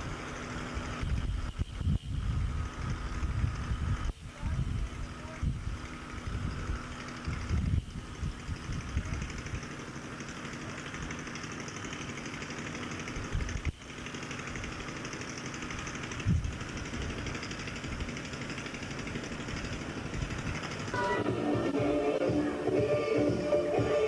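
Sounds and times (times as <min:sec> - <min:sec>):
low wind-like rumbles: 0:00.0 - 0:09.8, 0:15.7 - 0:18.4, 0:19.0 - 0:21.8
machinery hum: 0:00.0 - 0:24.0
fairground music: 0:20.9 - 0:24.0.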